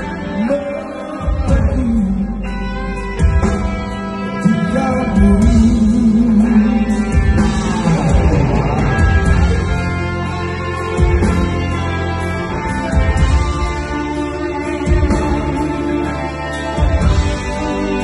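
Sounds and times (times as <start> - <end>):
man singing with vibrato: 0.0 - 3.1, 4.2 - 9.7
live band music: 0.0 - 18.0.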